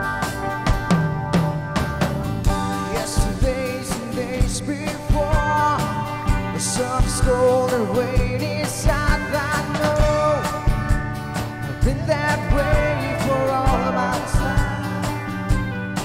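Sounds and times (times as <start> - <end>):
electric bass: 0.0 - 16.0
steady drum beat: 0.0 - 16.0
strummed acoustic guitar: 0.0 - 16.0
man singing into a microphone: 2.8 - 10.7, 11.7 - 15.4.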